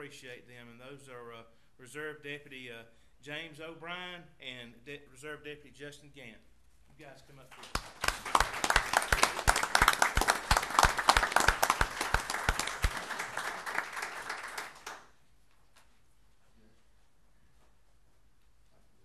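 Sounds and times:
group applauding: 7.4s - 15.2s
loud close claps: 7.5s - 15.2s.

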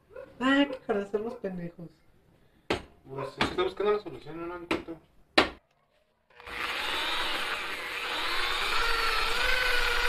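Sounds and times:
drill wire brush scrubbing metal: 6.4s - 10.0s.

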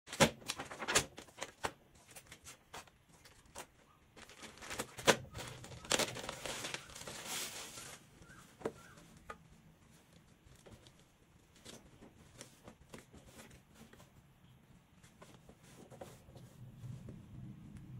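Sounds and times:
plastic bag crinkling: 3.1s - 9.0s.

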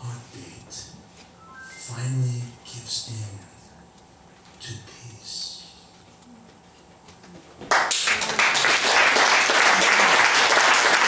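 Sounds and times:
audience applause: 7.7s - 11.0s.

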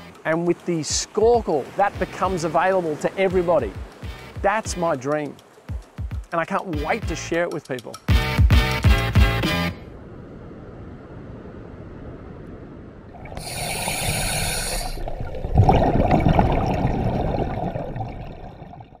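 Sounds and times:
hissing rush of water: 0.0s - 6.1s, 13.1s - 15.3s
water washing: 13.1s - 18.8s.

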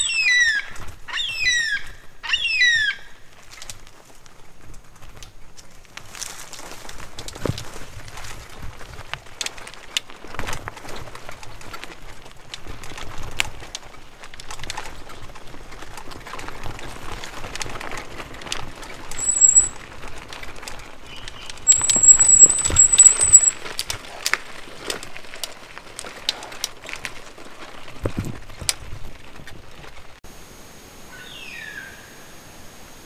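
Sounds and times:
bike tyres crunching on gravel: 3.1s - 30.2s
brake squeal: 19.2s - 19.8s, 21.7s - 23.6s.

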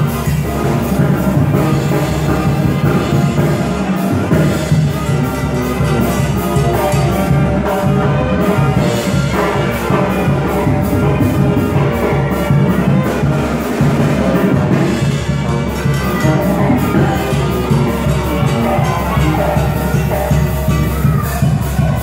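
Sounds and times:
brass band music: 0.0s - 22.0s
sousaphone bass line: 0.0s - 22.0s.

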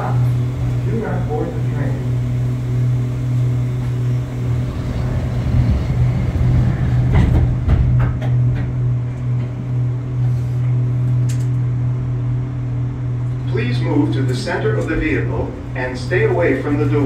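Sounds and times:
people mover car humming: 0.0s - 17.0s
sharp clicks and knocks: 7.1s - 8.8s.

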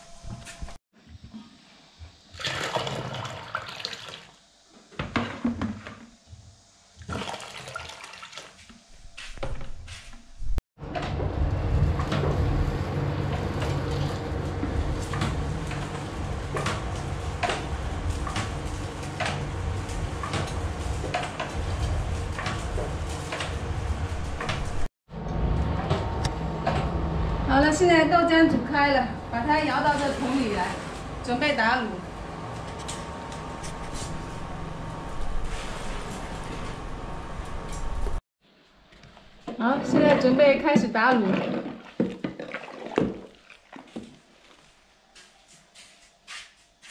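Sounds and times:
wood fire crackling: 11.4s - 24.9s.

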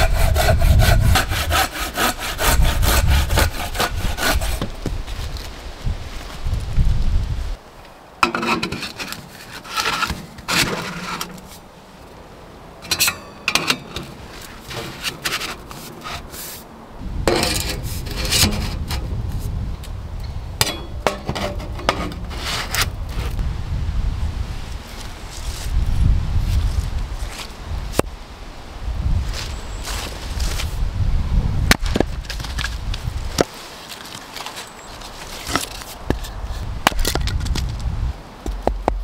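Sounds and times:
metal pipe scraping and rubbing: 8.2s - 11.6s, 12.8s - 16.6s, 17.3s - 19.1s.

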